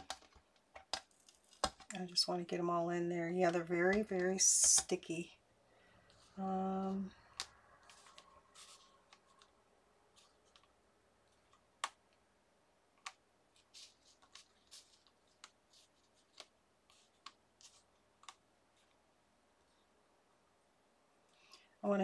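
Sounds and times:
soft rustling: 3.3s - 11.7s, 13.5s - 20.0s.

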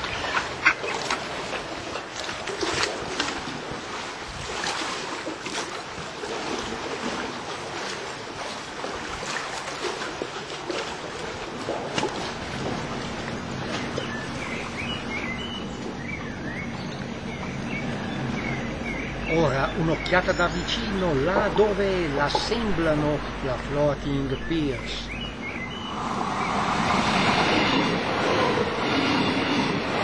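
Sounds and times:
wind on microphone: 0.0s - 6.8s, 24.4s - 30.0s
lake waves lapping: 0.0s - 30.0s
low steady hum: 11.2s - 28.9s
small birds chirping: 13.0s - 26.8s.

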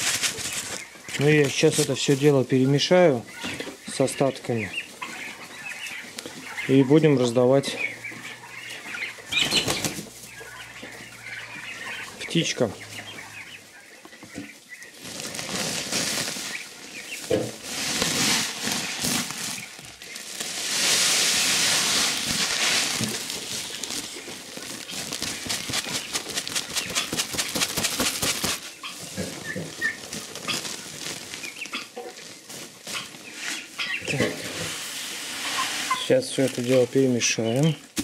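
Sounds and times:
plastic sack rustling: 0.0s - 13.8s, 14.5s - 38.0s
poults peeping: 0.0s - 38.0s
pellets pouring into metal tub: 20.2s - 24.1s.

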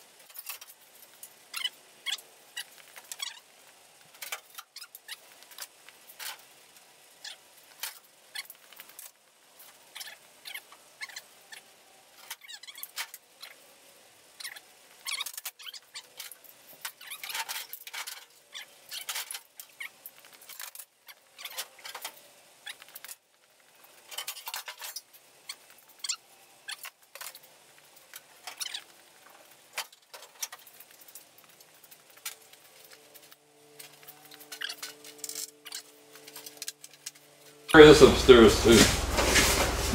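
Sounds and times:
metal parts clinking and clanking: 24.0s - 25.0s, 32.1s - 37.6s.

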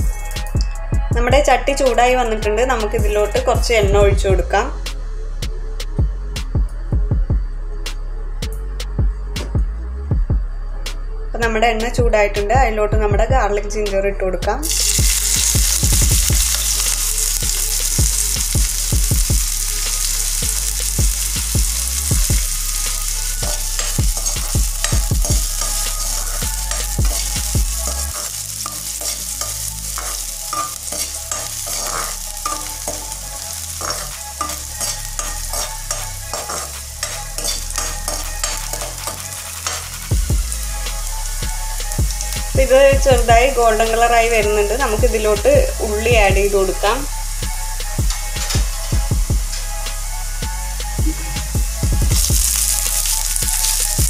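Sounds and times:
food sizzling in hot oil: 14.6s - 50.1s, 51.1s - 54.0s
metal spoon scraping a pan: 22.7s - 40.1s.

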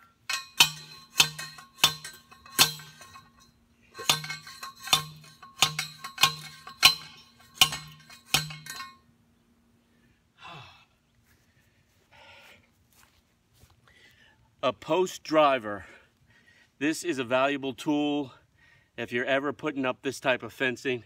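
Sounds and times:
post driver clanking on metal post: 0.0s - 9.0s.

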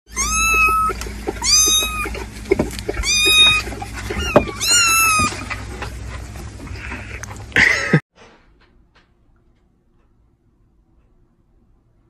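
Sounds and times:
kitten meowing: 0.1s - 2.2s, 3.0s - 5.5s.

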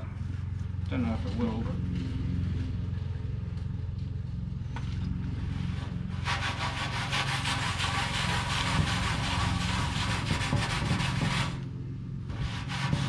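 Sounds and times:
steady low hum: 0.0s - 13.0s
rag scrubbing on metal: 5.6s - 11.6s, 12.3s - 13.0s.

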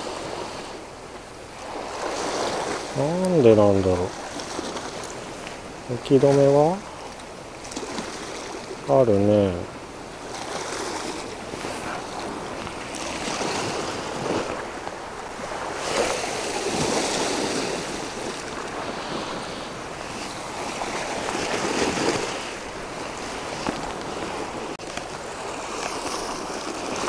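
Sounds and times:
sea waves washing over rocks: 0.0s - 27.0s.

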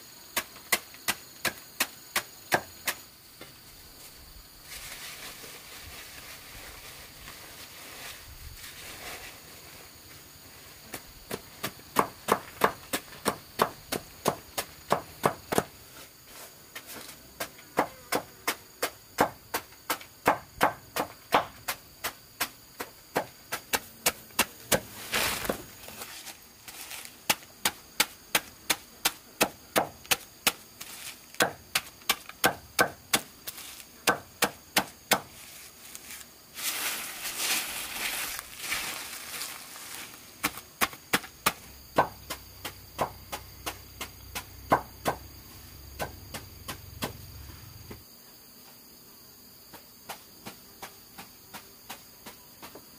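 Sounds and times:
insects trilling: 0.0s - 52.9s
rustling or scraping: 4.0s - 11.0s, 24.7s - 27.3s, 30.8s - 31.4s, 33.4s - 34.0s, 35.2s - 40.7s.

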